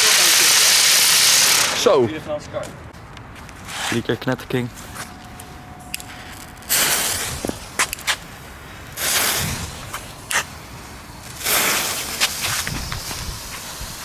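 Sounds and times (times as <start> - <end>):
firework fountain spraying sparks: 0.0 - 2.0, 6.6 - 14.0
hissing bursts of fuses: 0.0 - 2.0, 6.0 - 14.0.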